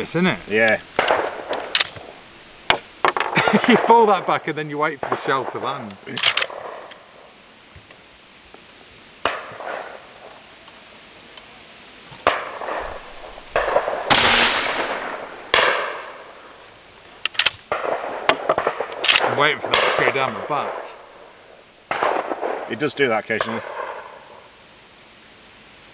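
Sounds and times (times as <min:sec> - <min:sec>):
faint sharp cracks: 0:00.6 - 0:03.4, 0:12.2 - 0:16.3
rifle bolt metallic clacks: 0:01.0 - 0:02.0, 0:06.1 - 0:06.5, 0:17.2 - 0:17.7, 0:18.3 - 0:19.3
rifle shot with ringing tail: 0:12.3 - 0:16.3, 0:21.9 - 0:22.7.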